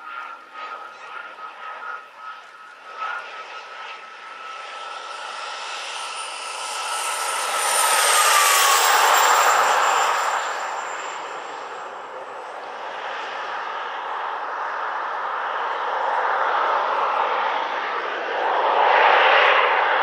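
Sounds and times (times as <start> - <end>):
jet turbines whining in flyby: 0.0 - 20.0.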